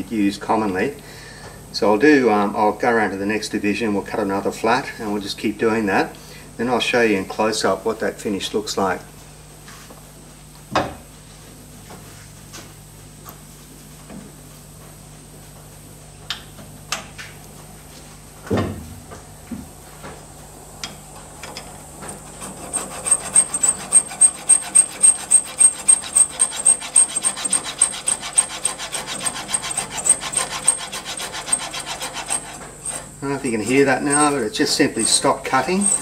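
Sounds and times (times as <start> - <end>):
hand file rasping on metal rod: 22.1 - 36.0.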